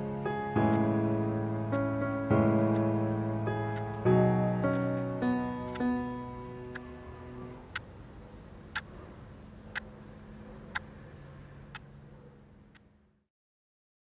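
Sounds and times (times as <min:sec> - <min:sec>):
piano notes: 0:00.0 - 0:07.8
faint low hum: 0:00.0 - 0:13.3
clock ticking: 0:00.6 - 0:00.9, 0:01.7 - 0:04.0.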